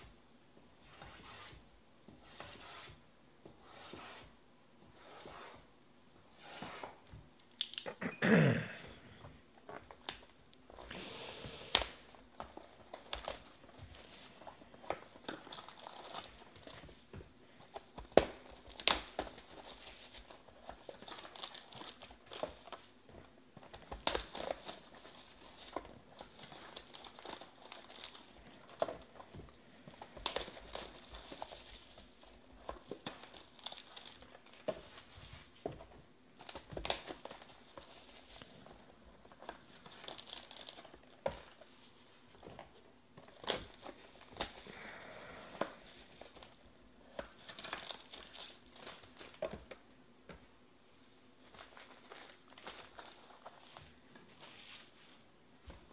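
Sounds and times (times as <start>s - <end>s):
shrink wrap crinkling and tearing: 11.5s - 17.0s, 17.7s - 35.6s, 36.4s - 45.0s, 45.6s - 49.8s, 51.4s - 55.1s.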